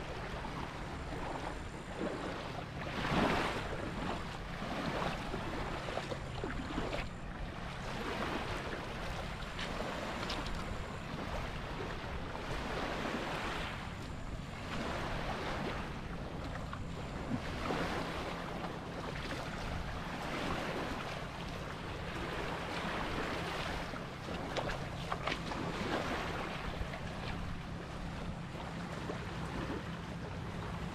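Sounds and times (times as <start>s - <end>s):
wind rumbling on microphone: 0.0s - 30.9s
waves lapping on pebble shore: 2.0s - 5.9s, 7.8s - 13.8s, 17.4s - 26.8s.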